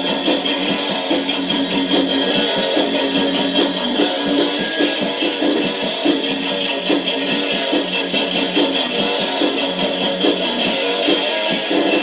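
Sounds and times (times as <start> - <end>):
strummed guitars: 0.0 - 12.0.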